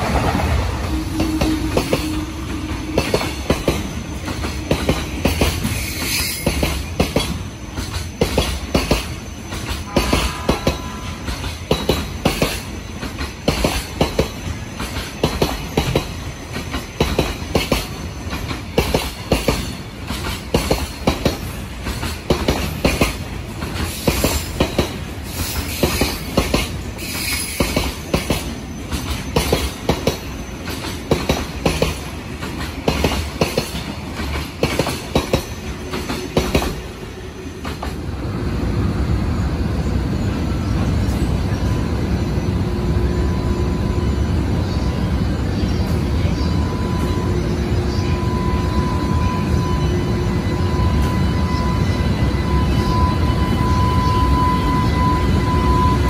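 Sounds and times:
train wheels clicking over joints: 0.0 - 38.1
wheel squeal: 0.8 - 9.8, 27.0 - 31.0.

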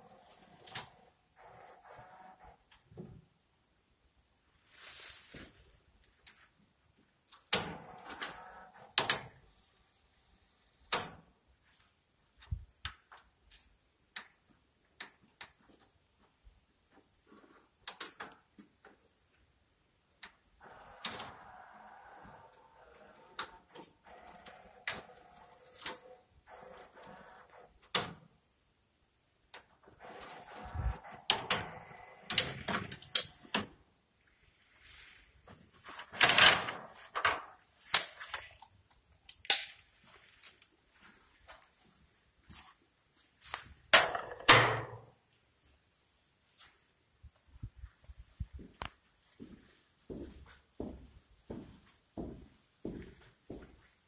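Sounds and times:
mechanical clicks and clunks: 17.9 - 28.0
cassette motor whir: 18.0 - 27.3.

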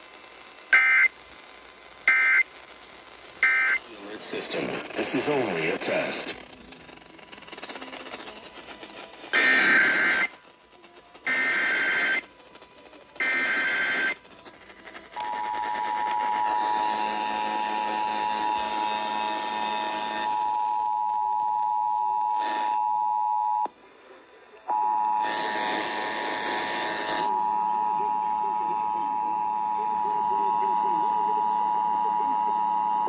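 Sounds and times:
data bursts from radio speaker: 2.0 - 33.0
two-tone attention signal: 24.7 - 33.0.

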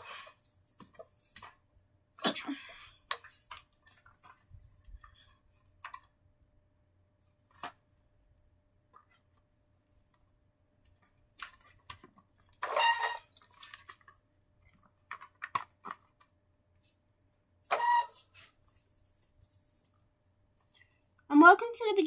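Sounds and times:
squeaky scrapes: 12.6 - 13.4, 17.7 - 18.6.

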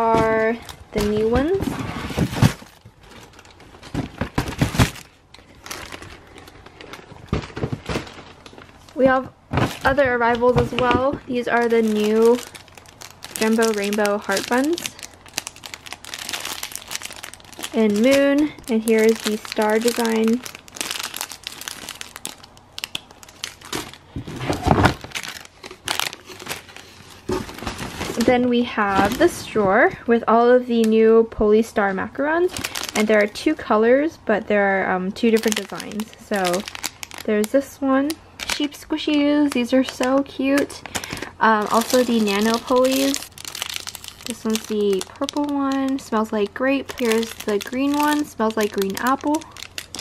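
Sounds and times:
cardboard boxes handled: 0.0 - 6.1, 23.8 - 28.4
plastic wrappers crinkling: 0.0 - 29.4, 32.4 - 33.6, 35.2 - 50.0.

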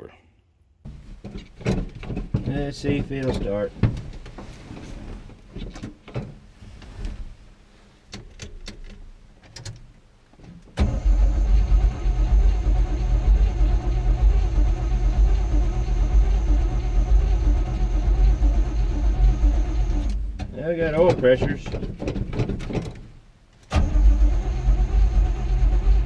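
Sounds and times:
truck engine starting and running: 10.8 - 26.0
clicks and knocks: 20.0 - 23.1.

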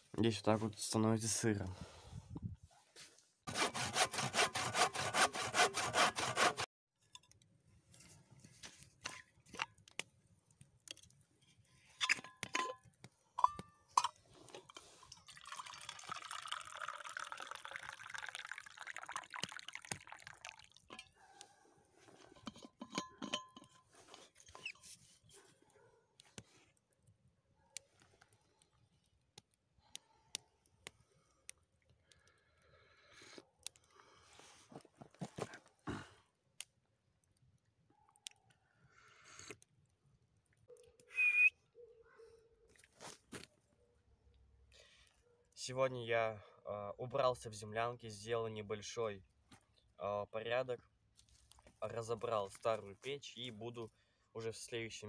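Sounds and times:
tea pouring into metal mug: 14.7 - 21.1.

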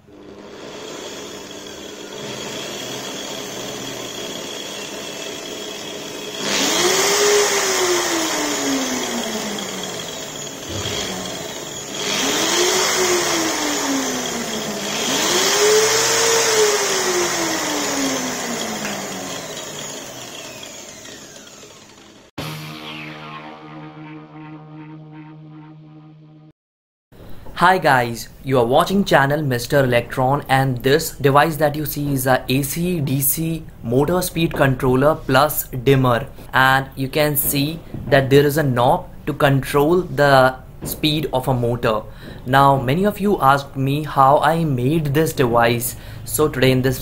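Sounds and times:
angle grinder motor whining: 0.0 - 24.7.

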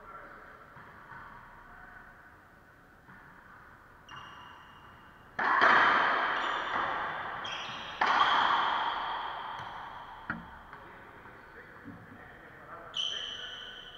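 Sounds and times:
racquetball bouncing: 0.7 - 1.5, 3.0 - 12.1
sharp ball strikes echoing: 5.4 - 10.8.

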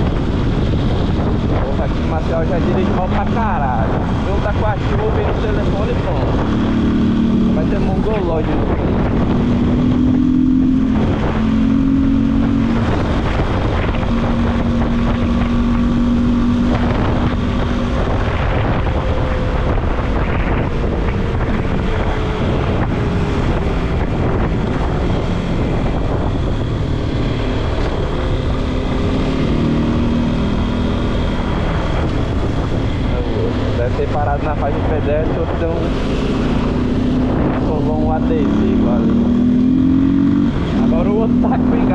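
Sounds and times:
motorcycle engine running: 0.0 - 41.9
wind noise on microphone: 0.0 - 41.9.

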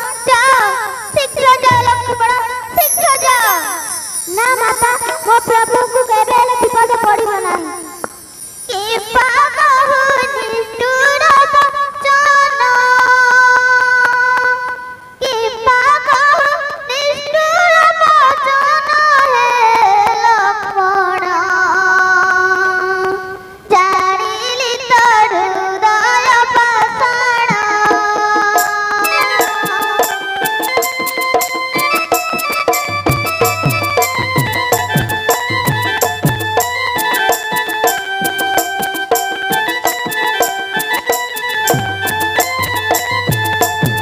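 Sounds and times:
high-pitched voice singing: 0.0 - 41.2
hand drums beat: 1.6 - 2.5, 27.5 - 44.0
held keyboard notes: 26.6 - 44.0.

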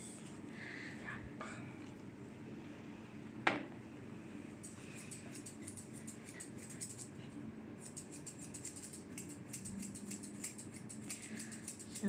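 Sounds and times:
grooming scissors snipping fur: 4.6 - 7.1, 7.8 - 12.0.

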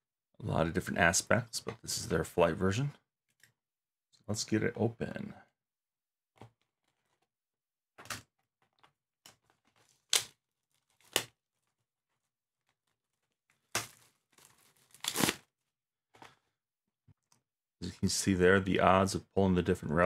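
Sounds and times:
packaging tearing and crackling: 9.4 - 11.7, 12.6 - 15.4.

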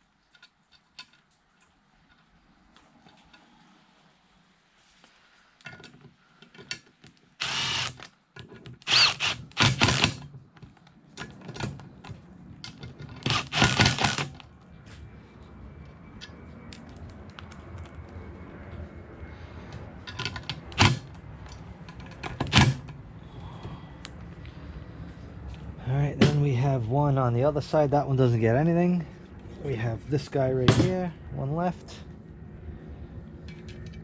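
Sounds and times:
small clicks of parts and tools: 0.3 - 3.5, 5.6 - 9.0
cordless driver running screws: 7.4 - 8.1, 8.8 - 10.2, 13.2 - 14.4.

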